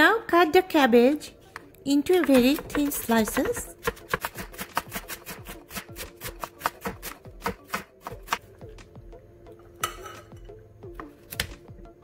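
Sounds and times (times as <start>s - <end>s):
knife chopping on wooden board: 2.1s - 8.4s.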